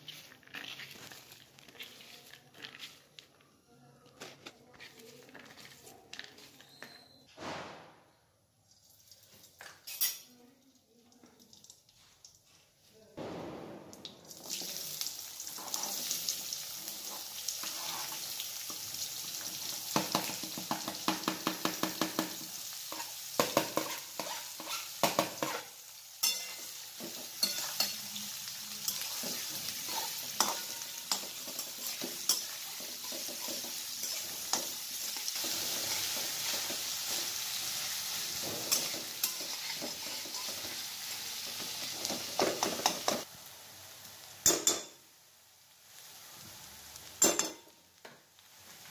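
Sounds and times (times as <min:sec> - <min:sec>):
onions sizzling in oil: 0:14.3 - 0:48.9
metal spatula scraping a wok: 0:17.1 - 0:18.4, 0:22.9 - 0:26.7, 0:28.8 - 0:43.0.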